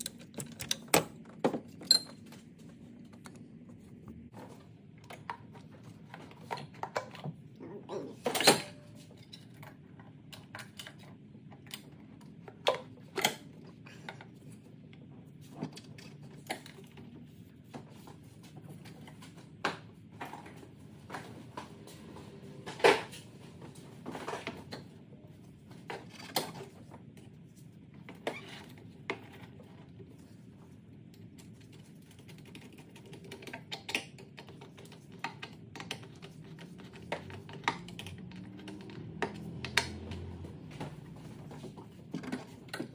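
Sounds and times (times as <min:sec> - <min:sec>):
tools and metal parts clinking: 0:00.0 - 0:02.3.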